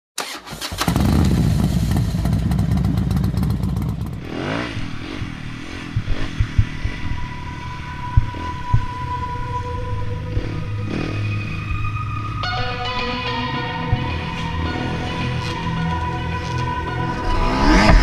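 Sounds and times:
dirt bike engine revving: 0.5s - 8.8s, 10.3s - 11.8s, 17.1s - 18.0s.

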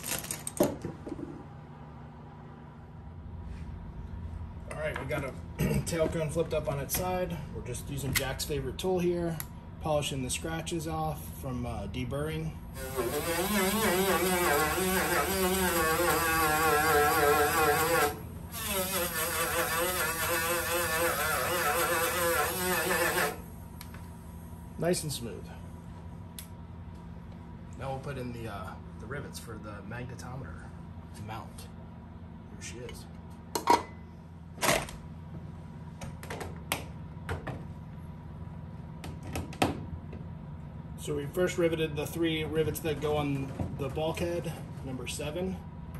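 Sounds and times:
steady low hum: 0.0s - 45.9s
rotary tool buzzing whine: 12.7s - 24.1s.

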